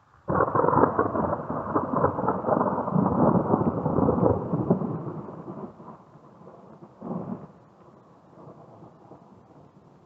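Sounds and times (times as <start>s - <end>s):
thunder crackling and rumbling: 0.2s - 10.0s.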